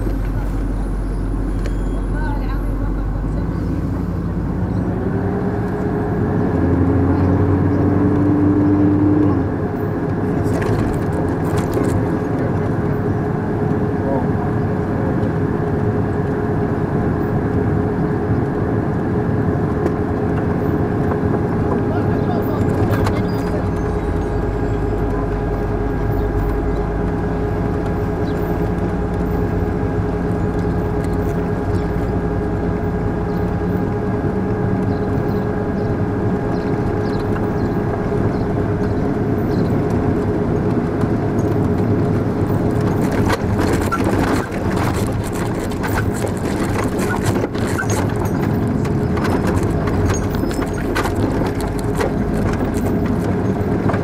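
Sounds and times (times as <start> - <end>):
vehicle engine whine and hum: 0.0 - 54.0
knocks and rattles: 10.1 - 13.0, 36.6 - 54.0.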